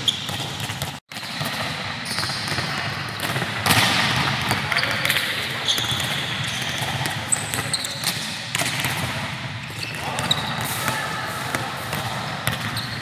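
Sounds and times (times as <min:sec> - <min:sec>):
volleyballs slapping and thudding: 0:00.0 - 0:04.7
shoe squeaks: 0:02.0 - 0:02.6, 0:04.7 - 0:08.2, 0:09.6 - 0:10.9, 0:12.6 - 0:13.0.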